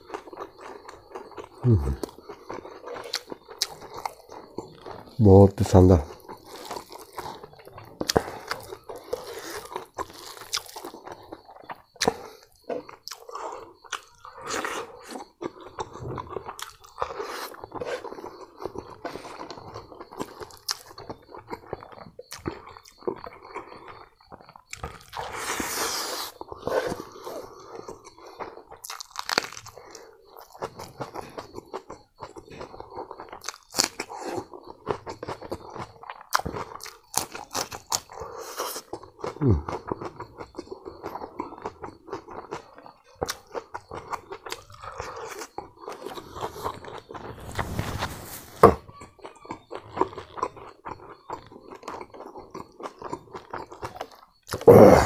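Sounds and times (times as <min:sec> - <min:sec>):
wet chewing and crunches: 0:00.0 - 0:55.0
breathy sounds: 0:01.6 - 0:02.9, 0:54.5 - 0:55.0.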